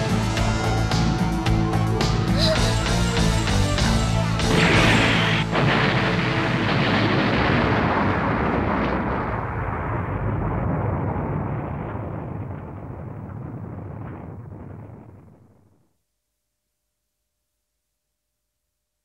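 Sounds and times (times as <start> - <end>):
explosion rumble: 2.5 - 15.8.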